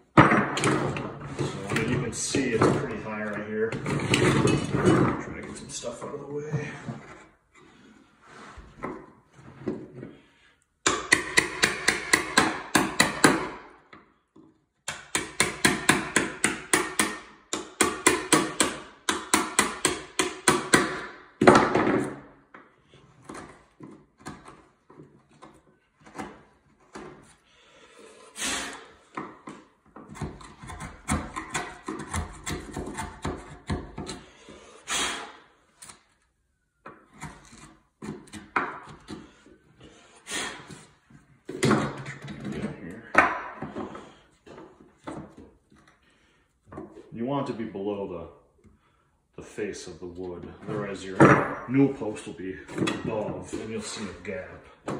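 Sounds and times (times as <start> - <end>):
hammer striking chisel: 10.8 - 13.7, 14.8 - 22.2
chisel scraping wood: 36.9 - 41.0.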